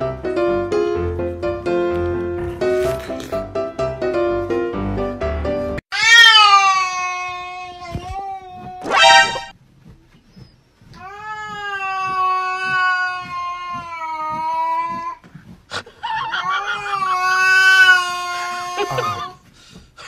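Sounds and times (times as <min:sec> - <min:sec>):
cat yowling: 0:05.9 - 0:09.0, 0:11.1 - 0:15.0, 0:16.1 - 0:19.3.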